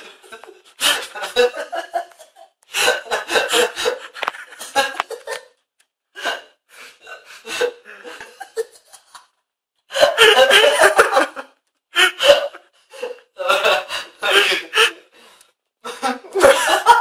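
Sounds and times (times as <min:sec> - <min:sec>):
young man laughing: 0:00.3 - 0:05.5, 0:10.0 - 0:11.4, 0:15.9 - 0:17.0.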